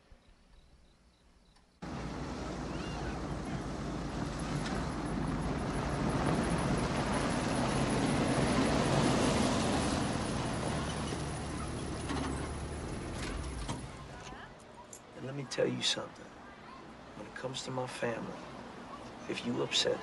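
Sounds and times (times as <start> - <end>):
pickup truck driving past: 1.8 - 14.2.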